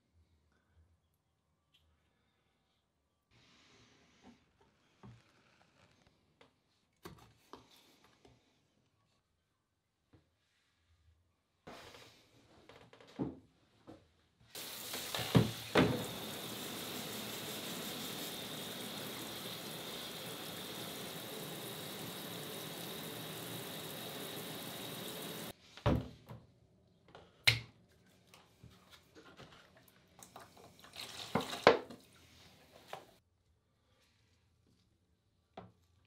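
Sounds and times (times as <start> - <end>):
water running: 14.5 - 25.6, 30.2 - 33.2.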